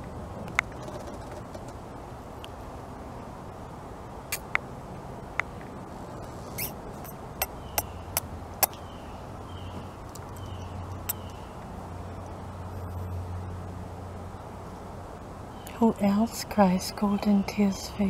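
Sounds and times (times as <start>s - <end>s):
sharp crisp clicks: 4.3s - 4.6s.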